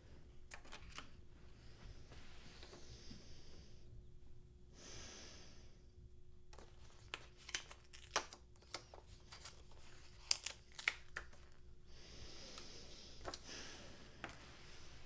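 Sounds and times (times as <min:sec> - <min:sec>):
faint steady hum: 0:00.0 - 0:15.0
breath: 0:04.8 - 0:05.8, 0:11.9 - 0:15.0
paper tearing and crackling: 0:07.2 - 0:11.5.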